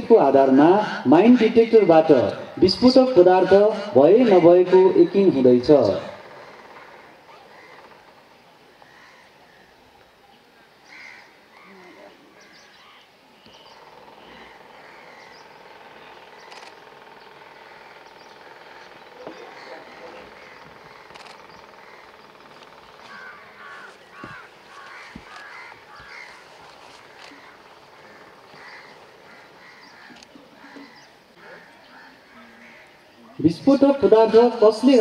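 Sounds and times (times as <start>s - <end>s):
distant voices: 11.5s - 35.0s
scattered clicks: 21.0s - 21.6s.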